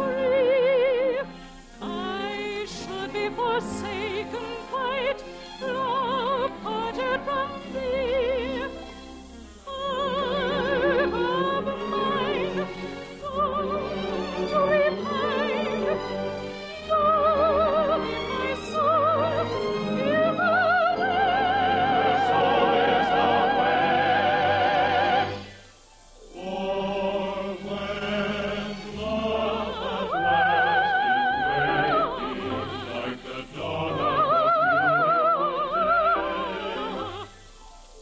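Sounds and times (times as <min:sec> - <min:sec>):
operatic voice singing: 0:00.0 - 0:08.8, 0:09.7 - 0:25.5, 0:26.3 - 0:37.3
orchestra playing: 0:01.7 - 0:27.0.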